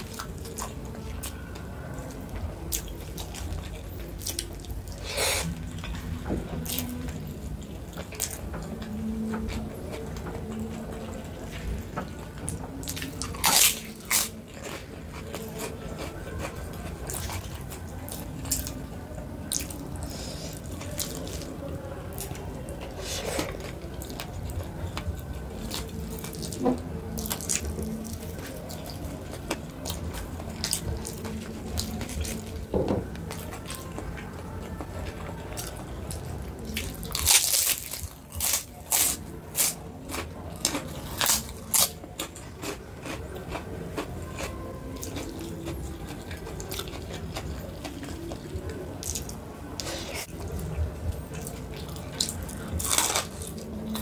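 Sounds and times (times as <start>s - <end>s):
person chewing with mouth clicks: 35.5s - 54.0s.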